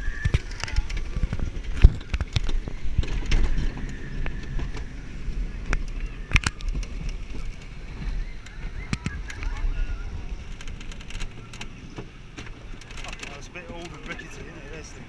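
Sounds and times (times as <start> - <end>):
roller coaster rumbling and rattling: 0.0 - 15.0.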